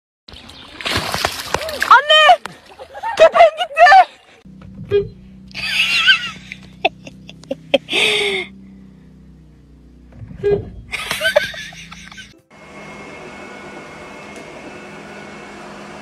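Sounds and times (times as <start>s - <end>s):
person laughing: 2.8s - 4.1s, 5.5s - 8.5s, 10.9s - 12.4s
steady low hum: 4.4s - 14.2s.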